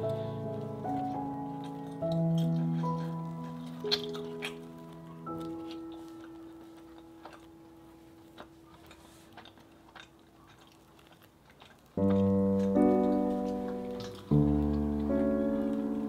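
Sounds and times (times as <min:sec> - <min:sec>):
solo piano chords: 0:00.0 - 0:08.7, 0:12.0 - 0:16.0.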